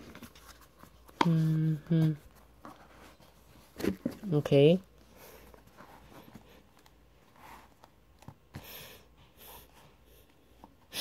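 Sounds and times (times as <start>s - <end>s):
faint breathing: 8.5s - 11.0s.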